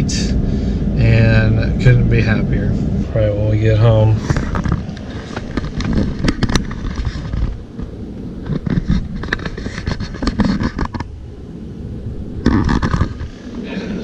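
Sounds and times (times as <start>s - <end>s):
low rumble: 0.0s - 14.0s
sharp clicks and knocks: 4.2s - 11.1s
phone handling rustling: 4.3s - 11.1s.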